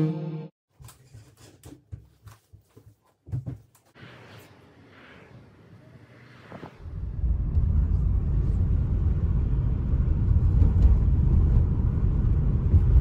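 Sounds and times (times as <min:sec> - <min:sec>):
road and tyre noise: 0:04.0 - 0:13.0.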